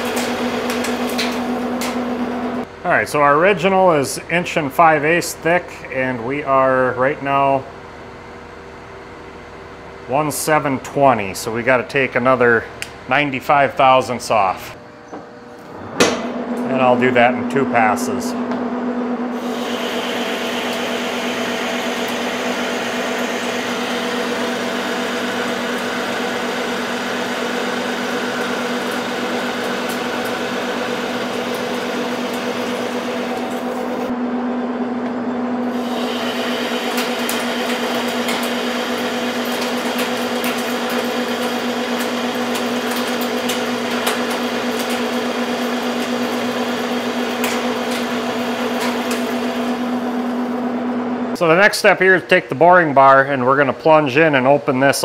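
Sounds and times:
metal lathe humming: 0:00.0 - 0:02.8, 0:14.7 - 0:51.4
lathe cutting hiss: 0:19.3 - 0:34.1, 0:35.7 - 0:42.3.

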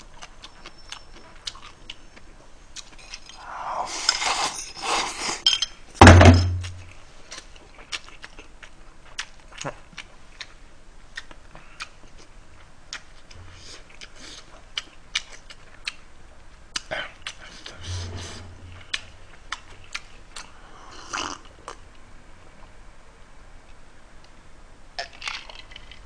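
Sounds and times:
slurping from a bowl: 0:03.9 - 0:05.4, 0:17.5 - 0:19.2.

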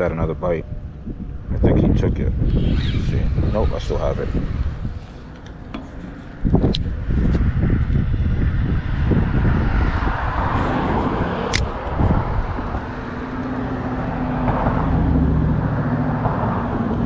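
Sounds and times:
vehicle engine hum: 0:00.0 - 0:17.0
passing vehicles rushing: 0:02.2 - 0:17.0.

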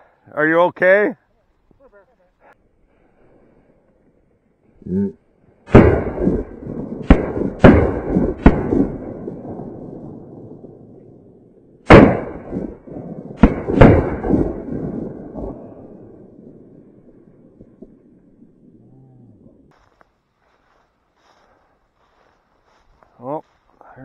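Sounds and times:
shotgun shots with echo: 0:05.7 - 0:09.8, 0:11.8 - 0:15.6.

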